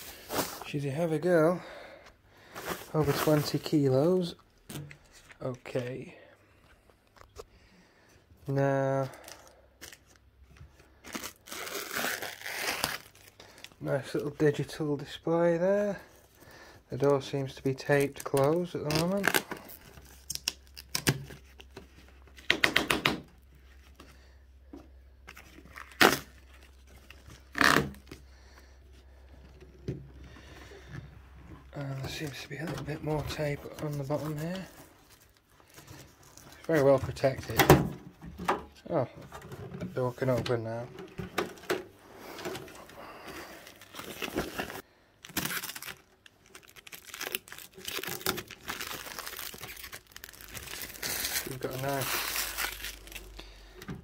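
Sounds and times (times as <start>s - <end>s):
plastic film crinkling and tearing: 2.6s - 5.9s, 10.9s - 14.5s, 17.6s - 22.4s, 25.3s - 28.2s, 31.8s - 37.6s, 42.4s - 53.8s
packing tape ripping off metal: 11.0s - 13.4s, 25.4s - 26.6s, 27.2s - 28.1s, 43.8s - 53.5s.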